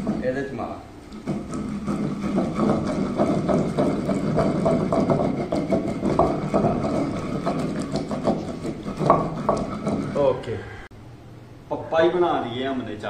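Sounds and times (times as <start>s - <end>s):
pestle pounding in stone mortar: 0.0s - 10.4s.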